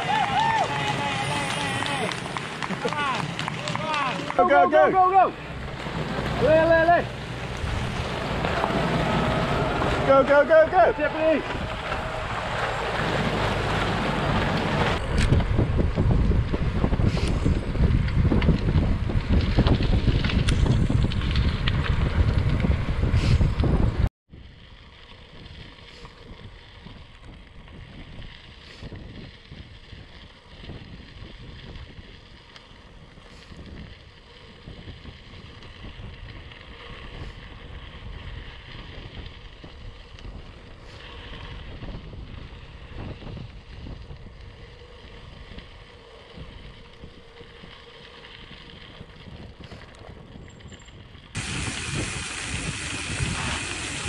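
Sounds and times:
wind buffeting microphone: 0:00.0 - 0:54.0
steady hiss: 0:51.4 - 0:54.0.

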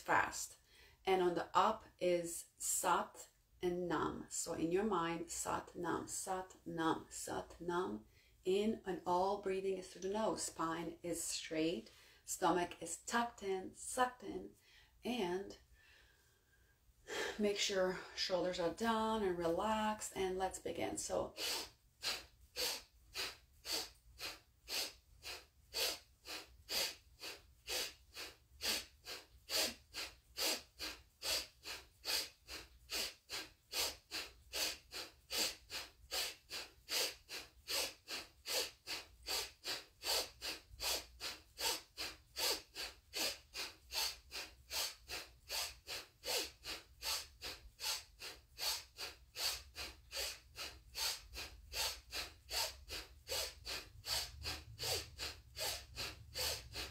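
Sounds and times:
rapid forceful nose breathing: 0:21.4 - 0:56.9.

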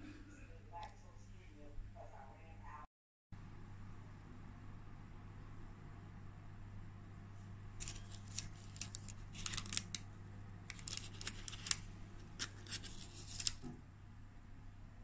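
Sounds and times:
scone crust crackling: 0:07.8 - 0:13.6.

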